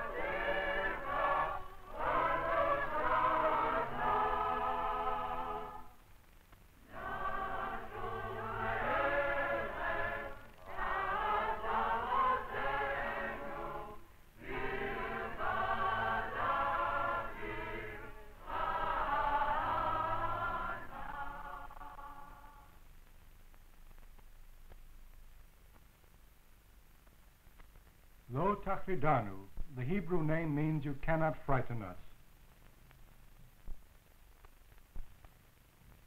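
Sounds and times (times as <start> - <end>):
choir singing: 0.0 - 6.0, 6.8 - 22.7.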